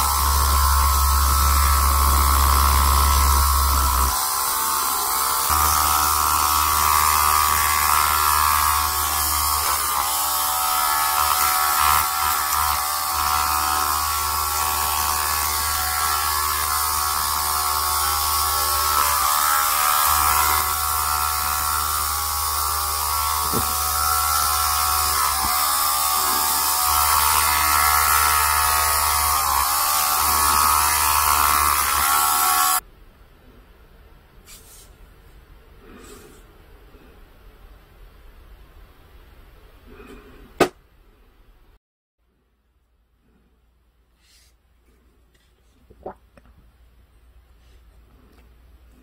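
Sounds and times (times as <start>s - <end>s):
small electric drill whining: 0.0s - 32.8s.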